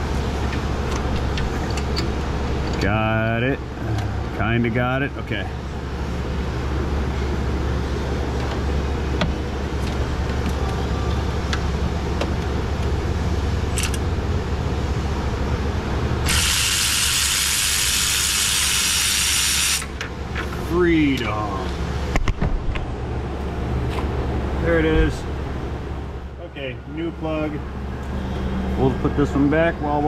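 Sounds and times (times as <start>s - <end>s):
steady low hum: 0.0s - 30.0s
cordless power tool running: 16.2s - 19.9s.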